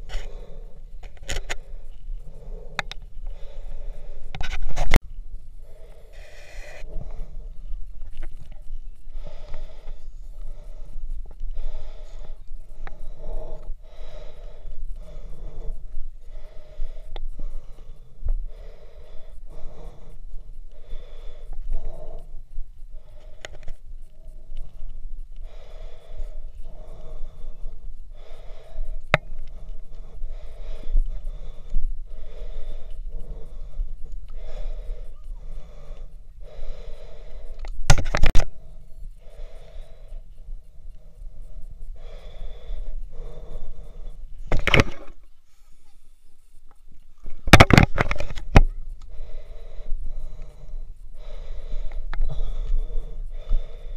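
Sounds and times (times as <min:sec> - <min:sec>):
heavy rhythmic breathing: 0:00.0 - 0:53.9.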